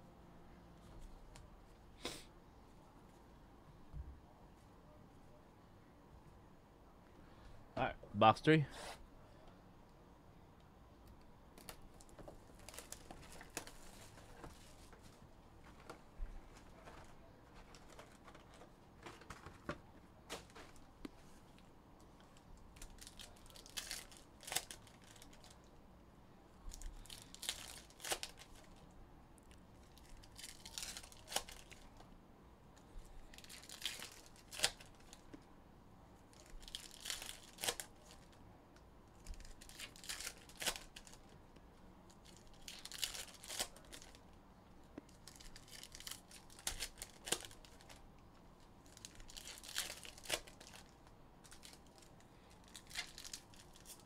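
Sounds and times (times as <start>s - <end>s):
foil wrappers crinkling: 11.6s - 20.9s, 22.4s - 25.7s, 26.7s - 28.8s, 29.8s - 32.0s, 33.3s - 35.3s, 36.3s - 38.4s, 39.2s - 41.4s, 42.1s - 44.4s, 45.1s - 48.0s, 48.8s - 54.0s
card packs tearing open: 22.8s - 25.6s, 27.0s - 28.7s, 29.9s - 31.9s, 33.3s - 35.2s, 36.3s - 38.3s, 39.3s - 41.3s, 42.2s - 44.2s, 45.1s - 48.0s, 48.8s - 54.0s.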